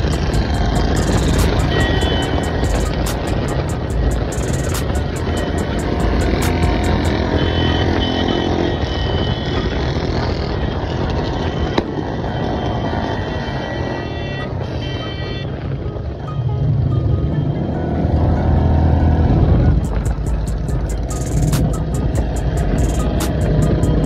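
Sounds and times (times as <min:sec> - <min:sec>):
background music: 0:00.0 - 0:07.6, 0:12.9 - 0:24.0
motorcycle engines running: 0:00.0 - 0:24.0.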